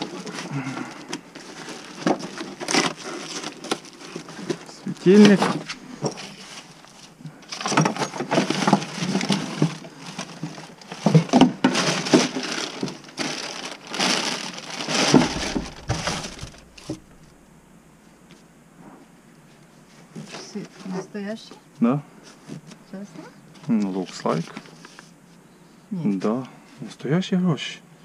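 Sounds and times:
plastic bags and papers rustling: 0.0s - 17.4s, 22.2s - 25.2s
items knocking on shelf: 14.9s - 17.4s.

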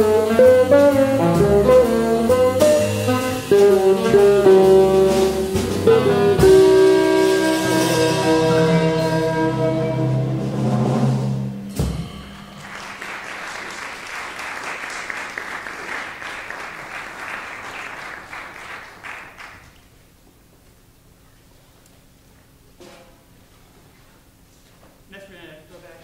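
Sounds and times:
jazz combo final chord: 0.0s - 13.1s
audience applause: 12.4s - 19.8s.

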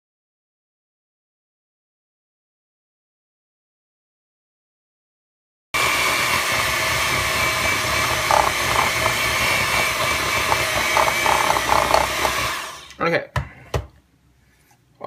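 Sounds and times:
electric hand mixer whining: 5.8s - 13.0s
clattering knocks: 8.1s - 12.5s.

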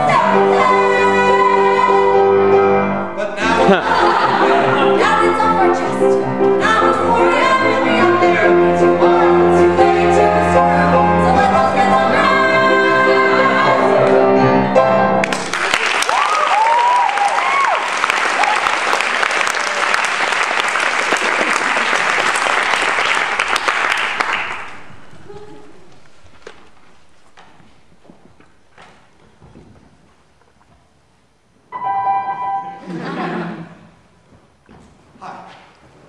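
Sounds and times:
man and woman singing duet: 0.0s - 2.4s, 3.2s - 14.2s
piano accompaniment: 0.0s - 15.7s, 31.7s - 33.4s
audience whooping: 15.2s - 26.7s
audience applauding: 15.2s - 27.5s.

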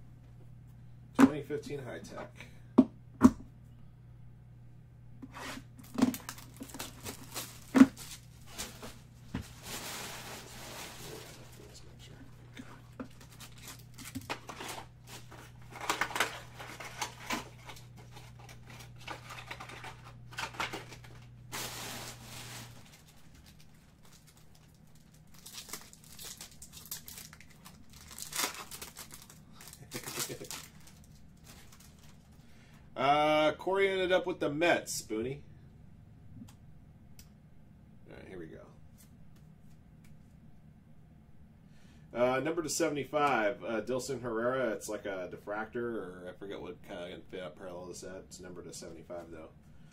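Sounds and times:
plastic wrap crinkling and tearing: 5.8s - 11.8s, 12.8s - 32.4s.

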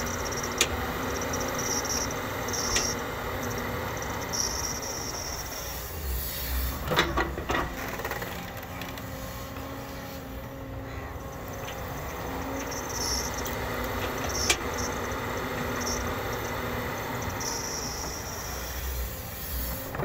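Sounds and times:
excavator diesel engine rumbling: 0.0s - 20.0s.

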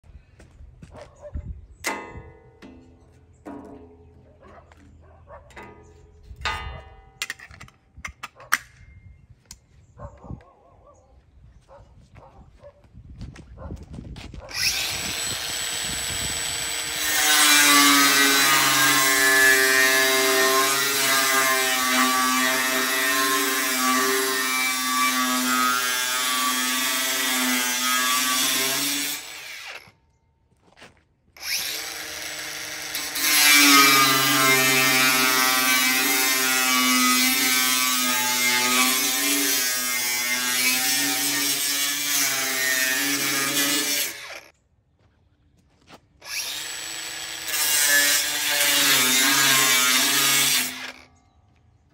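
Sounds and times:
grinder disc grinding steel: 5.4s - 8.6s, 14.5s - 30.0s, 31.4s - 44.5s, 46.2s - 51.1s
angle grinder spinning: 14.5s - 29.9s, 31.4s - 44.5s, 46.2s - 51.1s.

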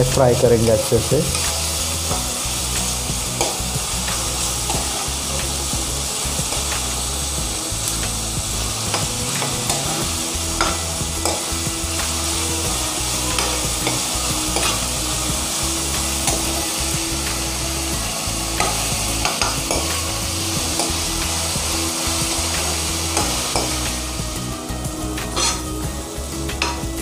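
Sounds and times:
onions sizzling in hot oil: 0.0s - 27.0s
metal spatula scraping a pan: 3.3s - 5.4s, 8.6s - 11.6s, 12.2s - 15.0s, 18.6s - 23.9s, 25.2s - 25.8s.

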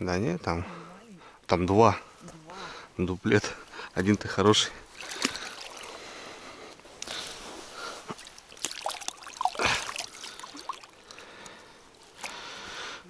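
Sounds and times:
water trickling and splashing: 4.7s - 12.9s.

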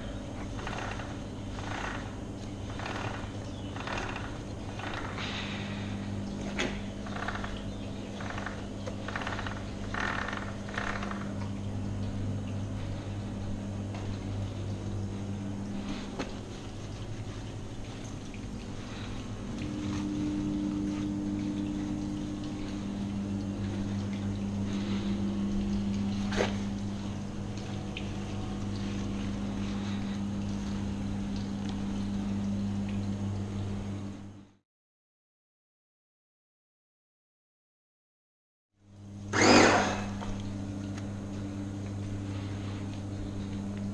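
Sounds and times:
water trickling: 0.0s - 34.3s
low electric hum: 0.0s - 34.6s, 38.8s - 43.9s
gloved hand rubbing wet bike: 15.7s - 21.2s, 28.2s - 30.8s.

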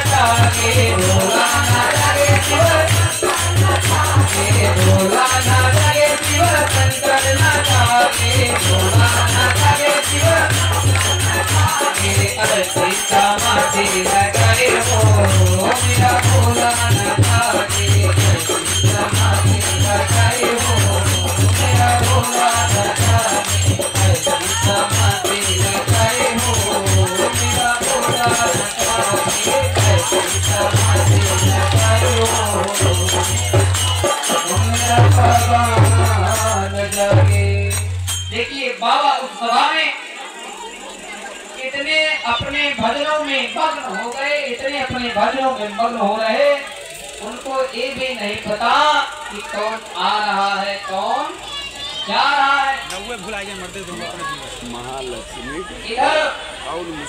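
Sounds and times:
crowd clapping along: 0.0s - 38.9s
person singing devotional song: 0.0s - 40.0s.

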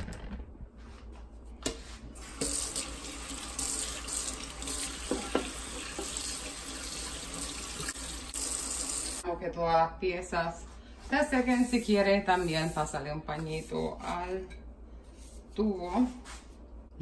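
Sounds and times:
water running into steel sink: 2.2s - 9.2s.

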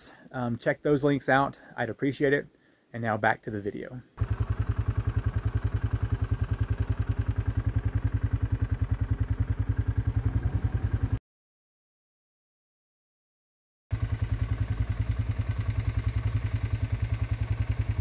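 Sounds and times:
low mechanical throb: 4.2s - 11.2s.

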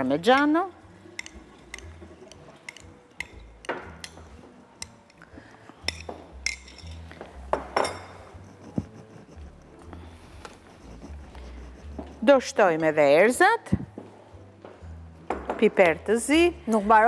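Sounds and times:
utensils clinking against glass bowls: 5.9s - 7.1s
spoon scraping glass bowl: 7.8s - 12.6s.

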